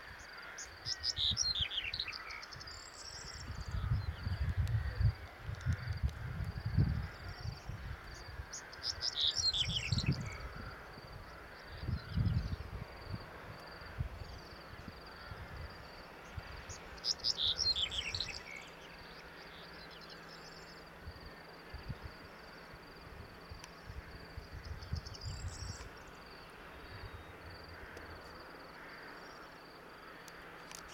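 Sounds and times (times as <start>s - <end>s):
crickets chirping: 0.0s - 30.9s
wind buffeting microphone: 2.5s - 8.6s, 9.4s - 16.8s, 23.0s - 26.0s.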